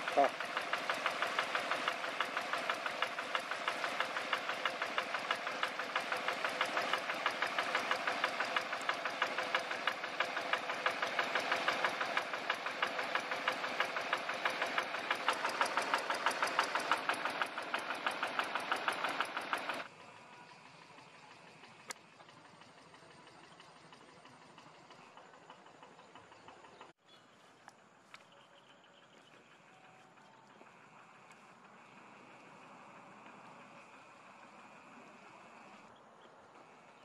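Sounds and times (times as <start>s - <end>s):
water gushing from pump: 0.0s - 19.8s
diesel engine knocking: 0.0s - 27.0s.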